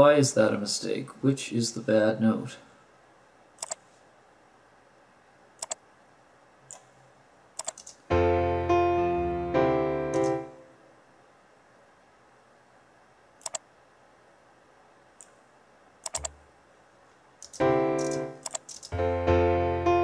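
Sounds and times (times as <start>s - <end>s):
mouse clicks: 3.6s - 3.8s, 5.6s - 5.8s, 6.7s - 6.9s, 7.6s - 8.0s, 13.4s - 13.6s, 16.0s - 16.4s, 17.4s - 18.9s
piano chords: 8.1s - 10.8s, 17.6s - 20.0s.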